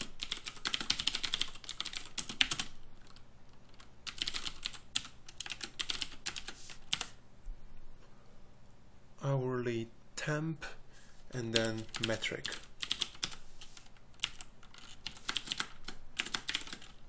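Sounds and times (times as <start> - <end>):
typing on computer keyboard: 0.0 - 7.2, 11.6 - 17.0.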